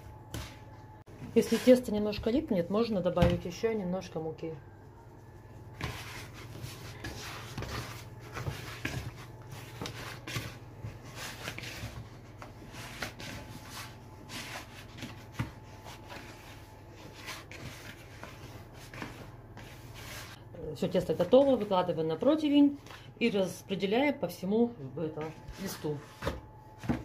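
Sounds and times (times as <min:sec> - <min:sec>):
hands kneading dough: 0:00.0 - 0:23.6.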